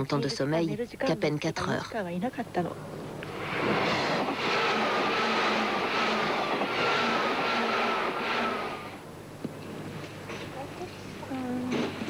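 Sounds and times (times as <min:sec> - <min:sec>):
train wheels on rails: 0:03.2 - 0:09.0.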